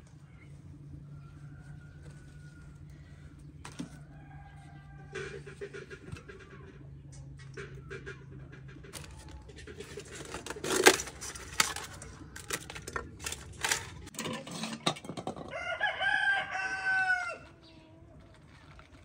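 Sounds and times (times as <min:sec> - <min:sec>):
rooster crowing: 0:01.0 - 0:05.5, 0:15.5 - 0:17.6.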